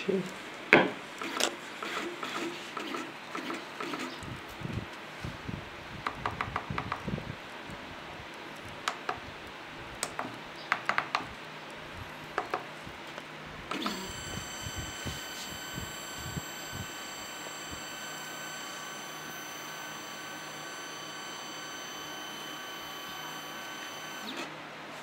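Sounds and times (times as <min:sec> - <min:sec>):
stepper motor high whine: 0:13.7 - 0:24.5.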